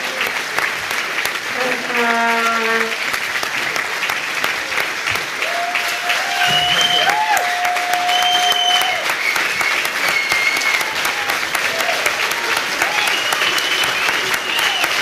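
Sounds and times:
audience applauding: 0.0 - 15.0
crowd calling out: 5.4 - 9.1.

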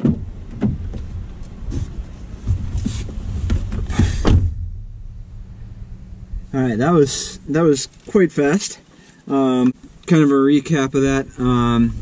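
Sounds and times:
knocks and thumps in car: 0.0 - 5.1
low rumble: 0.0 - 8.4.

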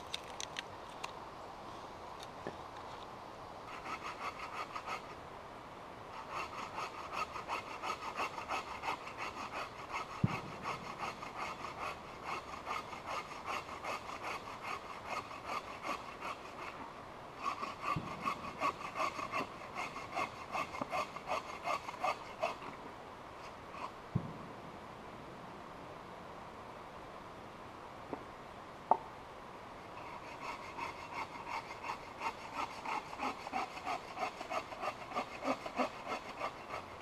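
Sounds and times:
hand saw cutting wood: 3.7 - 5.1, 6.2 - 16.8, 17.4 - 22.7, 30.0 - 37.0.

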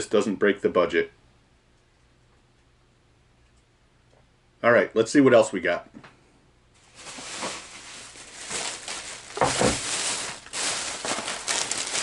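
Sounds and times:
plastic bag rustling: 6.8 - 12.0.

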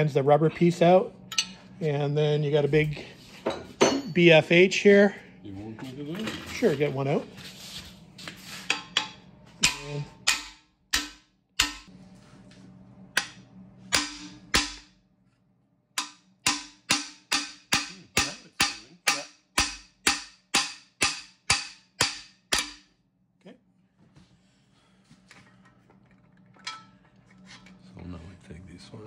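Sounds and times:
hammer striking steel bar: 8.7 - 11.9, 13.2 - 14.9, 16.0 - 23.0.

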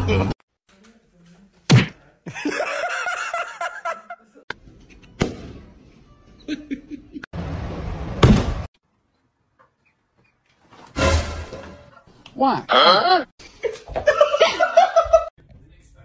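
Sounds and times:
person laughing: 6.4 - 7.3.

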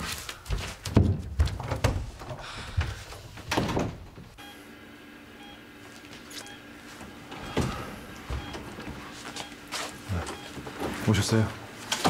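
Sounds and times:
steady low hum: 0.0 - 12.0
patient monitor beeping: 4.4 - 4.7, 5.4 - 11.2.

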